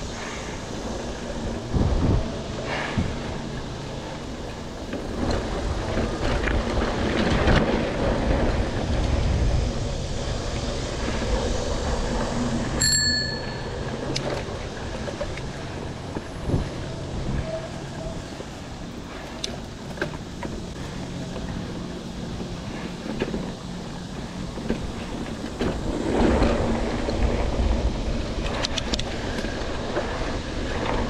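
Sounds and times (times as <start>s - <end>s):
bike tyres on dirt: 0.0s - 31.0s
bicycle bell ding: 12.8s - 13.9s.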